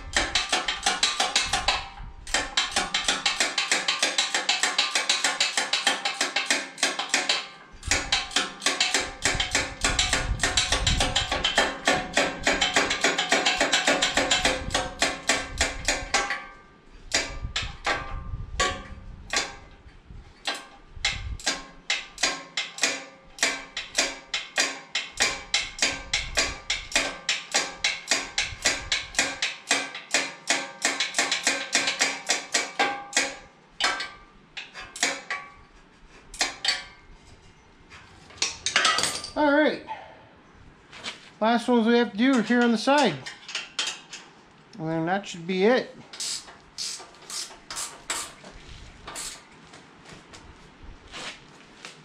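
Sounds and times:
hand ratchet clicking: 0.1s - 16.3s, 46.1s - 48.3s.

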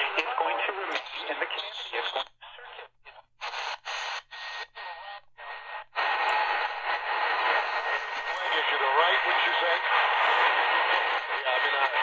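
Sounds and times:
noisy am radio reception: 0.0s - 12.0s
radio tuning bursts of hiss: 0.0s - 12.0s
thin steady radio whistle: 3.4s - 12.0s.

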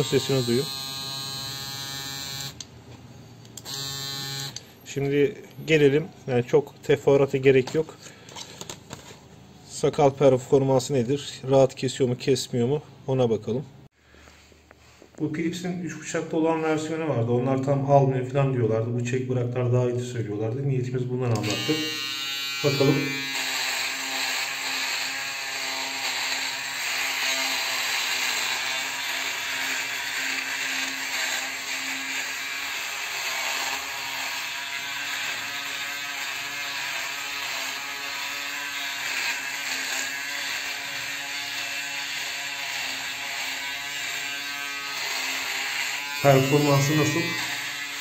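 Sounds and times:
electric shaver buzzing: 0.0s - 2.6s, 3.6s - 4.7s, 21.4s - 48.0s.

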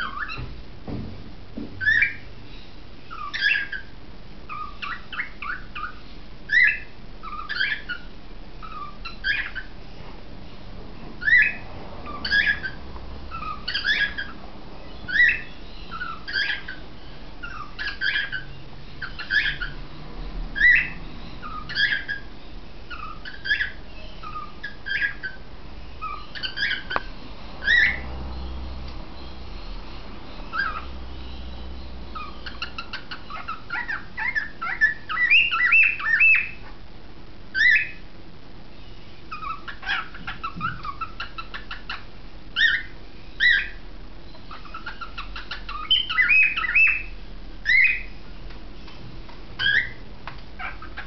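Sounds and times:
cockatiel contact calls: 0.0s - 0.5s, 1.8s - 3.9s, 4.5s - 9.7s, 11.2s - 14.4s, 15.0s - 16.8s, 17.4s - 19.8s, 20.6s - 22.3s, 22.9s - 25.4s, 26.0s - 28.1s, 30.5s - 31.0s, 32.1s - 36.7s, 37.5s - 38.0s, 38.8s - 48.2s, 48.8s - 51.0s.

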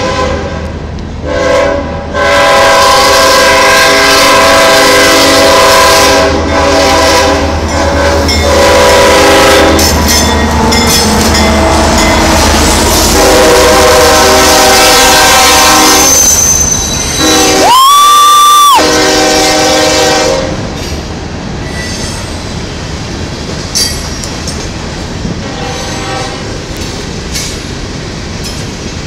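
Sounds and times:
locomotive horn chord: 0.0s - 9.9s, 11.3s - 16.2s, 17.2s - 17.7s, 18.8s - 20.6s, 25.4s - 26.5s
train wheels clattering over rails: 6.5s - 17.4s, 20.6s - 29.0s
sharp wheel squeal: 15.8s - 17.4s, 21.6s - 22.5s.

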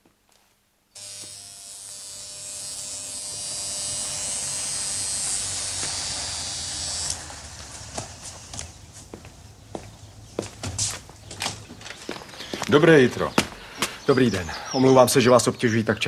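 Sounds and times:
electric shaver buzzing: 0.9s - 8.8s.

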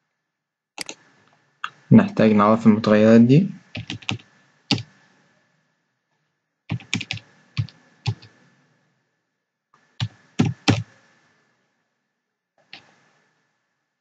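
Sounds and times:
keyboard typing: 0.8s - 1.0s, 3.7s - 4.9s, 6.7s - 8.3s, 10.0s - 10.9s.

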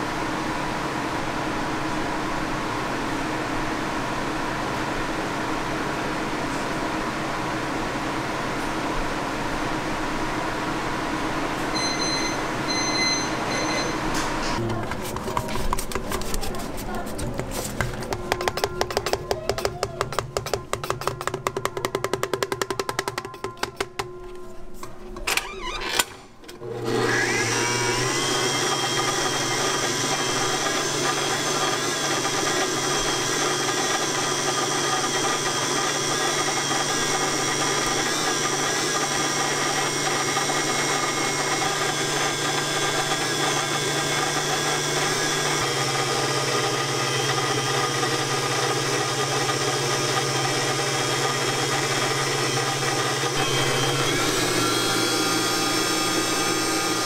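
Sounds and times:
stand mixer motor whining: 17.8s - 24.2s, 26.6s - 57.0s.

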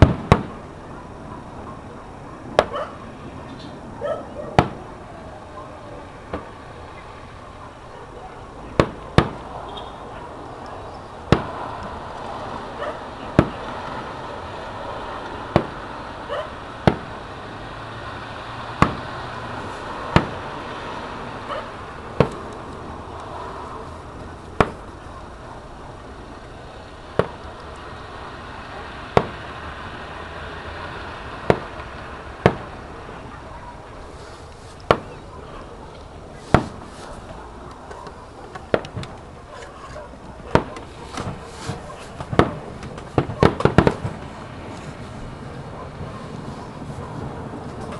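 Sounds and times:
distant firework bangs with echo: 0.0s - 0.6s, 2.5s - 2.9s, 4.5s - 4.9s, 6.3s - 6.6s, 8.7s - 9.9s, 11.2s - 11.6s, 12.4s - 14.2s, 15.2s - 17.3s, 18.8s - 20.6s, 21.5s - 22.5s, 24.6s - 24.9s, 27.1s - 27.6s, 28.6s - 29.6s, 31.4s - 33.2s, 34.9s - 35.2s, 36.4s - 37.0s, 40.4s - 44.3s.

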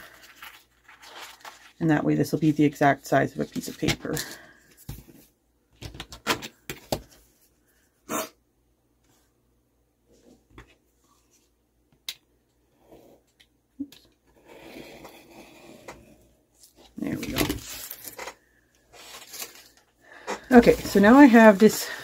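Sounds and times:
craft knife scraping along ruler: 14.4s - 16.2s.

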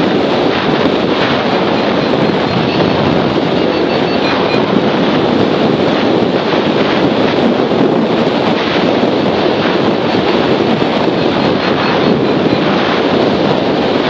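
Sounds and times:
airflow buffeting microphone: 0.0s - 14.0s.

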